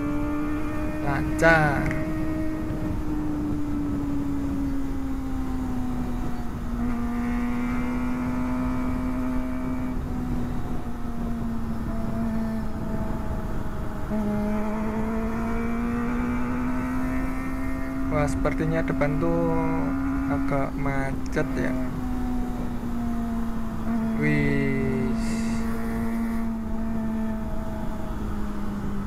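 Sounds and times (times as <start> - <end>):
motorcycle engine at high revs: 0.0 - 29.0
wind noise on microphone: 1.6 - 5.1, 9.9 - 15.2.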